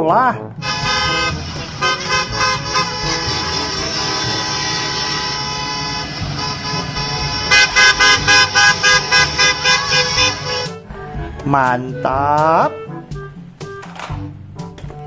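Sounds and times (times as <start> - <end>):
bus horn honking: 0.6 - 10.9.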